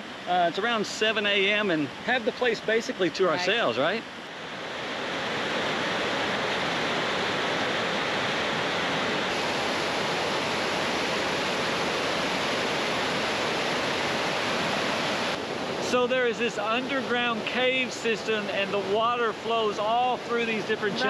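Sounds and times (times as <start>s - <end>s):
river water rushing through canyon: 0.0s - 21.0s.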